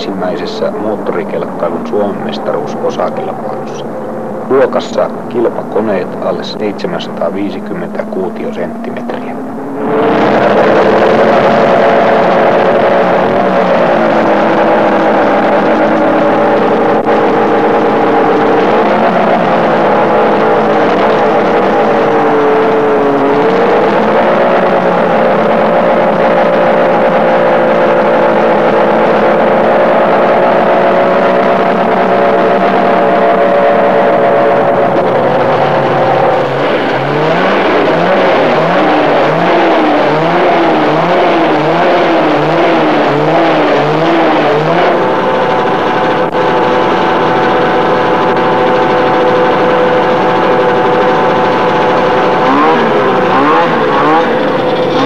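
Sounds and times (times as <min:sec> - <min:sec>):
engine revving up: 0:00.0 - 0:55.0
snowmobile engines high revs whine: 0:00.0 - 0:55.0.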